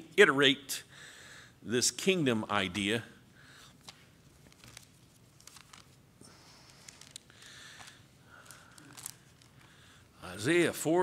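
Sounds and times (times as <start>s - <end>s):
pages being turned: 3.8s - 9.7s.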